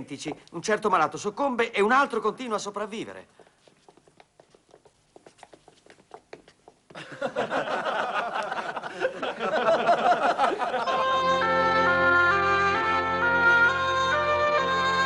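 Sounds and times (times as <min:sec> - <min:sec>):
young men laughing and jeering: 0:07.0 - 0:11.1.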